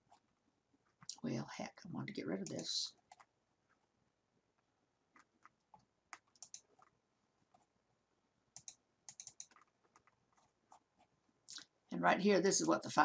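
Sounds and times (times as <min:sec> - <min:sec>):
mouse and keyboard clicking: 0:02.4 - 0:03.3, 0:05.1 - 0:07.0, 0:08.6 - 0:10.8.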